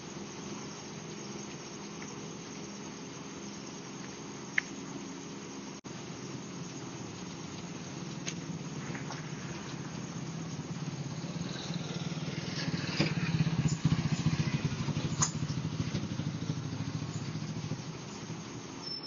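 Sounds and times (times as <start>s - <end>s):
scooter engine puttering: 6.9s - 18.9s.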